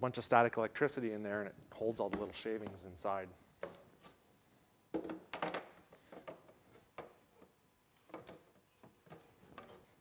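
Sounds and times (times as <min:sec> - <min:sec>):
plastic pipe knocks and scrapes: 0:08.1 - 0:10.0.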